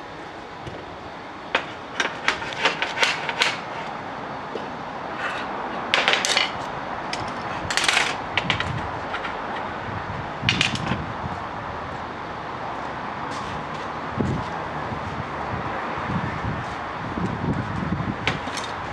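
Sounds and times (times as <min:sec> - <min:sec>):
metal scraping: 0:05.1 - 0:09.7.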